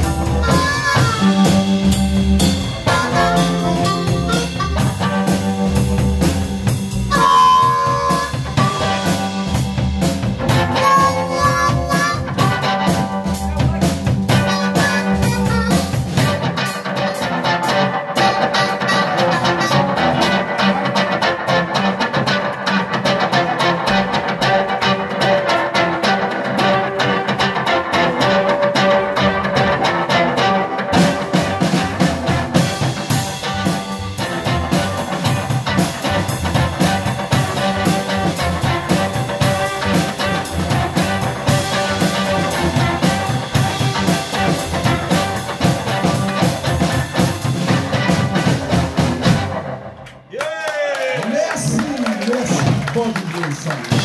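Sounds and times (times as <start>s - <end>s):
amplified harmonica wailing: 0.0s - 6.2s, 6.9s - 13.3s, 14.3s - 22.9s
upright double bass: 0.0s - 16.5s, 30.9s - 49.5s
steady beat: 0.0s - 50.4s, 51.6s - 54.0s
electric guitar: 0.0s - 54.0s.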